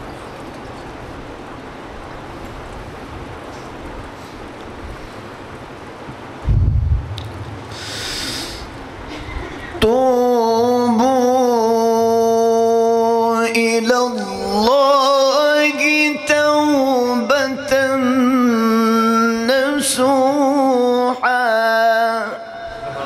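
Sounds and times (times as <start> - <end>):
man reciting melodically: 9.8 - 23.0.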